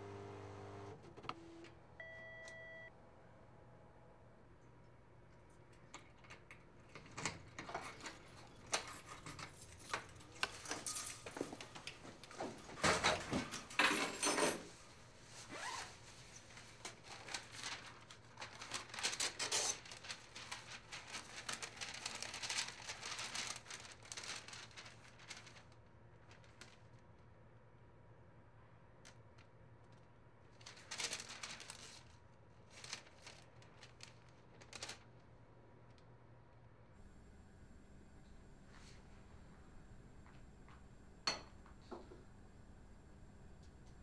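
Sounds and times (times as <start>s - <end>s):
paper rustling: 15.7s - 26.9s, 29.9s - 35.2s.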